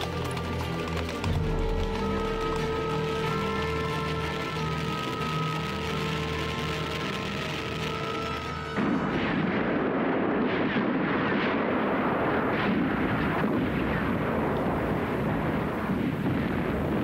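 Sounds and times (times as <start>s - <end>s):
background music held notes: 0.0s - 10.2s
artillery fire and explosions: 0.0s - 17.0s.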